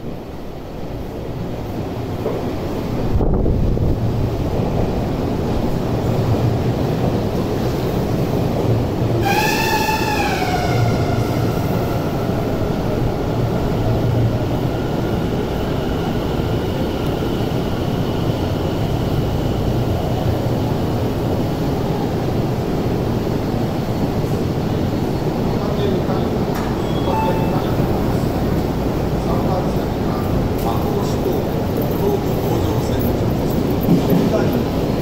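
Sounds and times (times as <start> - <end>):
subway train braking: 0.0 - 35.0
train brake whine: 9.2 - 13.5.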